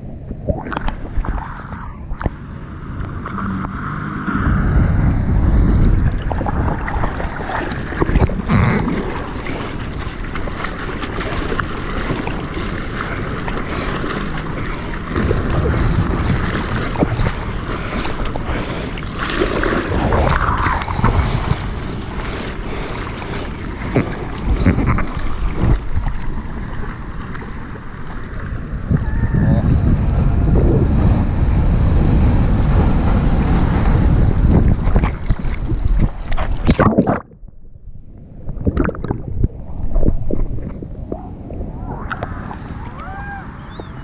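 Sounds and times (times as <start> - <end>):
wind buffeting microphone: 0.0 - 18.8, 27.6 - 37.2
water sloshing and splashing: 0.4 - 30.7, 32.6 - 37.6, 38.4 - 42.7
surf breaking: 0.6 - 37.2.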